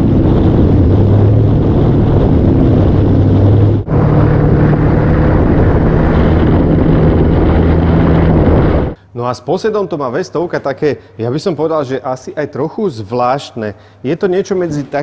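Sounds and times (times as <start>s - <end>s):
motorcycle engine running: 0.0s - 9.0s
wind rush: 0.0s - 9.0s.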